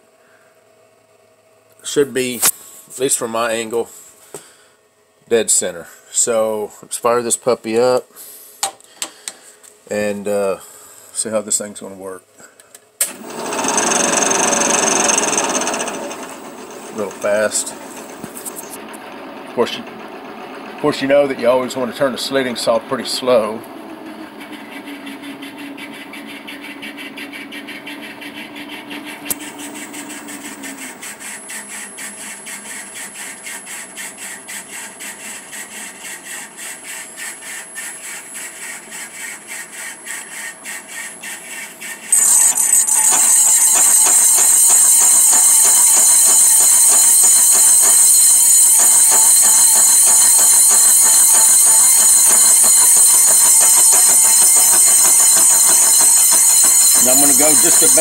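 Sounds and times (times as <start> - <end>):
saw screeching into metal: 13.1 - 18.8, 27.6 - 58.0
milling machine spindle hum: 13.1 - 25.2, 42.1 - 58.0.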